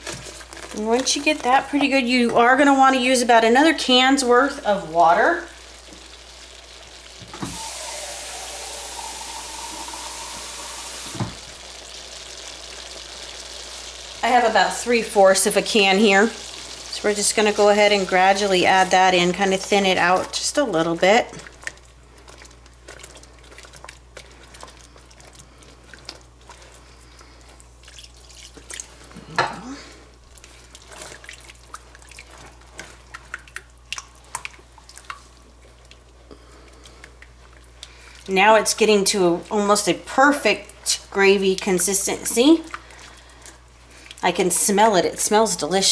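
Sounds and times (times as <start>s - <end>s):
faucet running into a can: 5.6s - 14.4s
wet dripping liquid: 21.3s - 29.2s, 30.2s - 38.4s.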